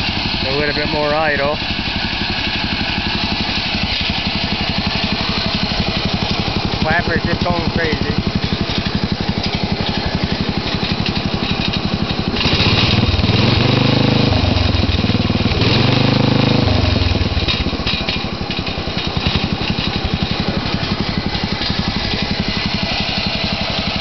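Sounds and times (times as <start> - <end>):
lawn tractor engine idling and revving: 0.0 - 24.0
exhaust flapper cap rattling: 3.7 - 13.4, 17.0 - 24.0.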